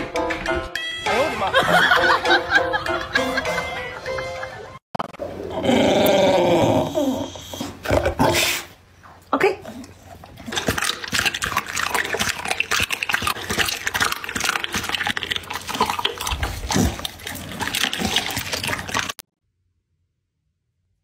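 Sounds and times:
dog chewing and slurping: 9.7s - 19.2s.

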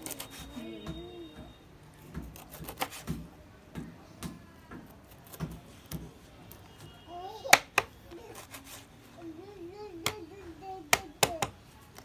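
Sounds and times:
knife chopping on plastic board: 2.0s - 6.2s.

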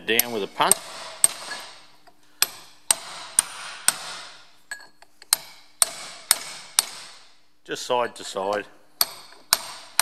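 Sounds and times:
hammer striking steel punch: 0.1s - 1.8s, 2.4s - 4.4s, 5.3s - 7.3s, 9.0s - 10.0s.

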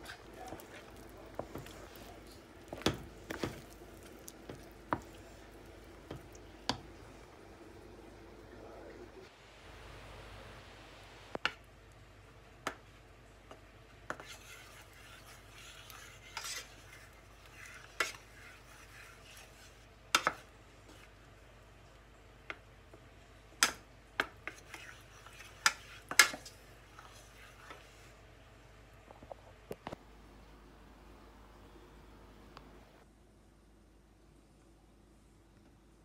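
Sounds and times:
spoon scraping saucepan: 14.1s - 21.1s, 24.4s - 28.1s.

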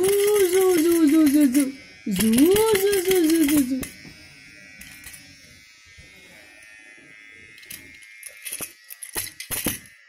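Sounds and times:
electric hair trimmer buzzing: 0.0s - 10.0s.

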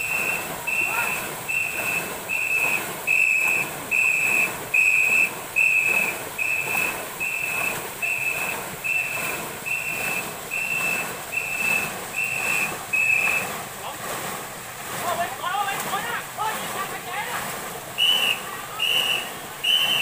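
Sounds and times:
whistle short blasts: 0.0s - 13.5s, 18.0s - 20.0s
paddles splashing water: 0.0s - 20.0s.

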